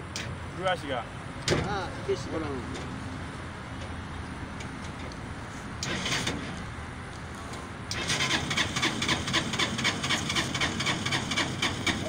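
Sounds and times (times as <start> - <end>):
motorbike engine starting and running: 5.8 - 6.6, 7.9 - 12.0.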